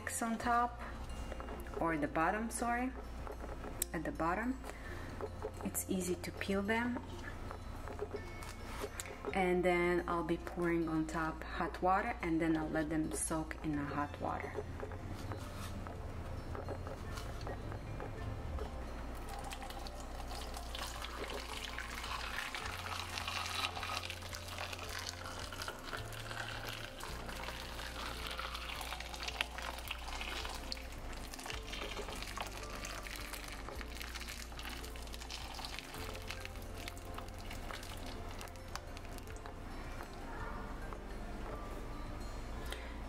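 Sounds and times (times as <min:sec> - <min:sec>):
hot water pouring into bowl: 0:19.5 - 0:39.3.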